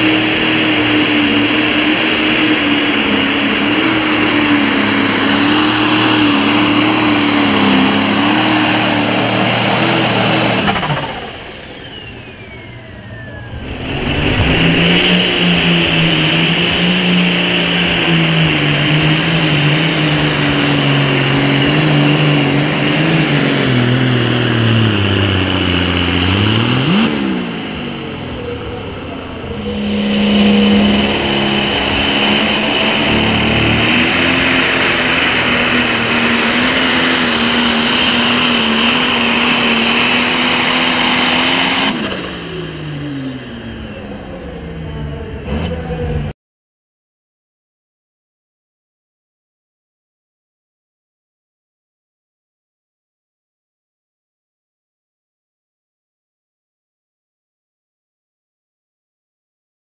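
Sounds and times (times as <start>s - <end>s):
high whine: 0.0s - 46.3s
diesel engine at full power: 0.0s - 46.4s.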